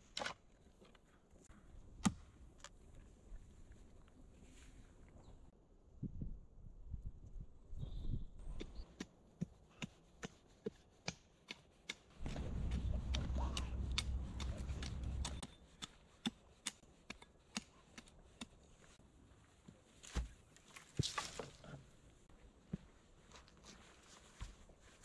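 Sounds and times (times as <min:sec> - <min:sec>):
dog scratching at soil: 0:12.2 - 0:15.5
dirt and twigs crackling: 0:12.2 - 0:15.6, 0:19.6 - 0:21.8.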